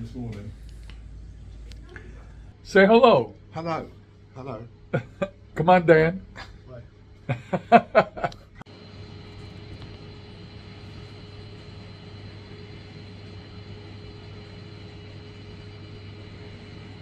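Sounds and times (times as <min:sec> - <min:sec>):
aquarium equipment humming: 0:00.0 - 0:17.0
hiss of circulating water: 0:08.7 - 0:17.0.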